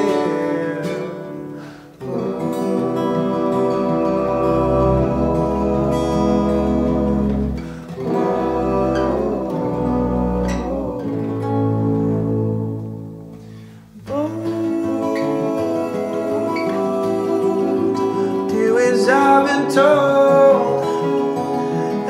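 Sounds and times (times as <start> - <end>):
fingerpicked acoustic guitars: 0.0 - 22.0
bowed upright bass: 2.2 - 13.6.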